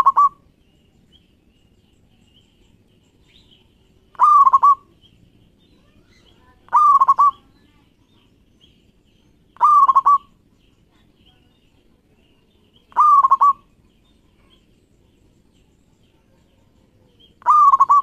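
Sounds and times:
dove cooing: 0.0 - 0.4, 4.1 - 4.9, 6.7 - 7.4, 9.6 - 10.4, 12.9 - 13.7, 17.4 - 18.0.

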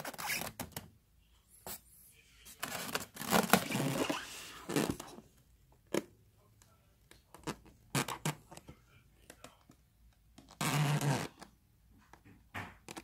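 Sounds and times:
styrofoam box rustling and scraping: 2.6 - 5.1.

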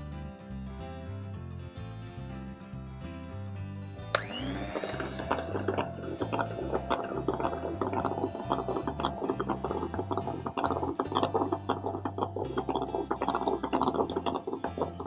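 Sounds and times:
background music with bass: 0.0 - 15.0
beaters clinking against bowl: 4.2 - 15.0
electric hand mixer whipping: 4.2 - 15.0.

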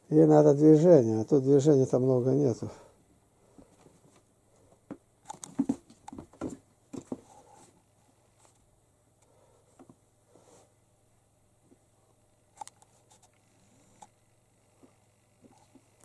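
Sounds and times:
kitten paws pattering and thumping: 4.9 - 7.8.

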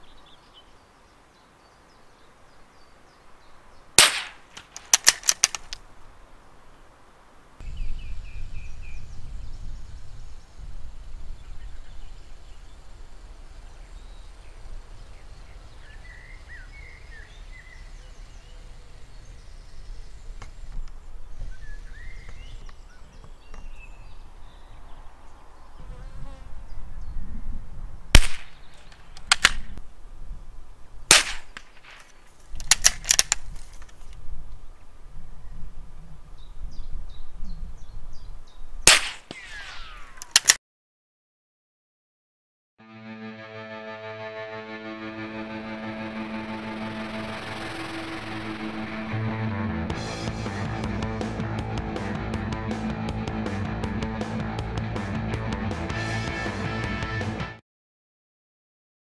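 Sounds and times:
rifle shots: 4.0 - 5.8, 28.1 - 29.7, 31.1 - 33.4, 38.9 - 40.6
wind rumble on microphone: 7.6 - 31.1, 32.5 - 38.9.

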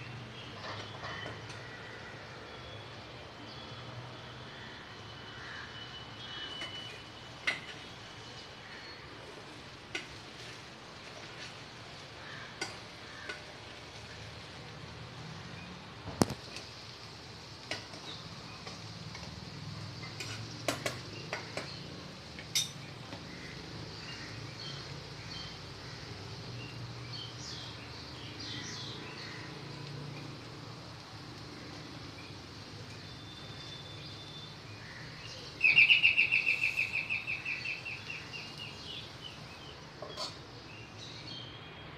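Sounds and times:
spoon clinking against pot: 22.4 - 22.8.

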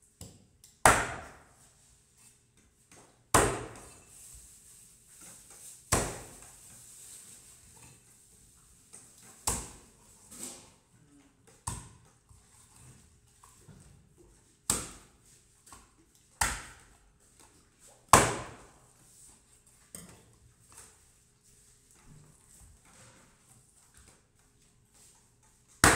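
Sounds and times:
cleaver chopping fish on wood: 3.4 - 3.8, 18.1 - 18.6.

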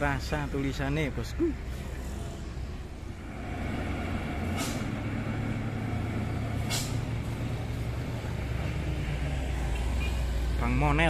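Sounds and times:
diesel truck engines rumbling: 0.0 - 11.0
air brake hisses: 4.5 - 5.0, 6.6 - 7.0.

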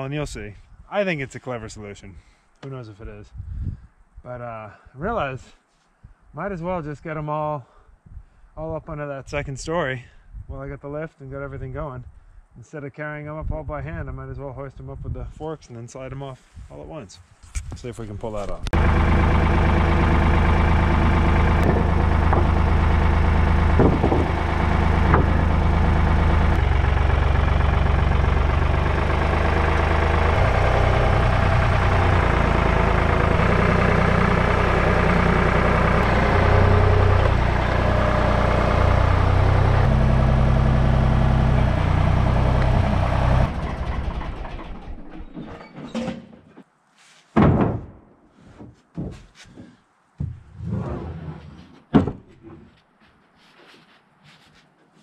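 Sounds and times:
tractor engine running: 18.4 - 45.4
knocks: 21.6 - 22.8, 23.7 - 25.5, 47.4 - 48.0, 51.9 - 52.6.

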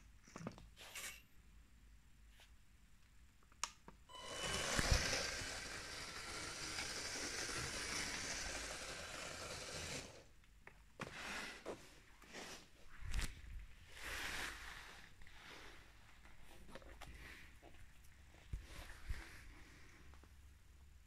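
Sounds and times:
toy train motor whirring: 4.1 - 10.3.

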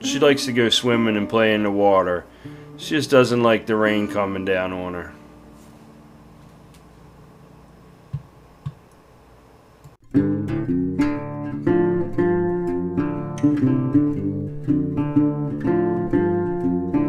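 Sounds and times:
acoustic guitar music: 0.0 - 6.6, 10.0 - 17.0.

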